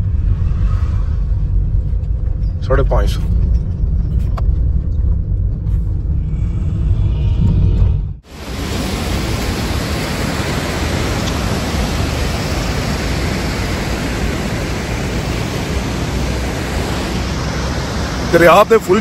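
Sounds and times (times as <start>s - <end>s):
river water rushing: 8.3s - 19.0s.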